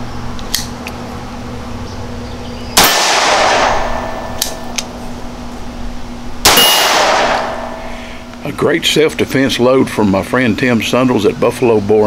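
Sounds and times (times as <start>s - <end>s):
pistol shots with echo: 2.8s - 4.8s, 6.4s - 7.9s.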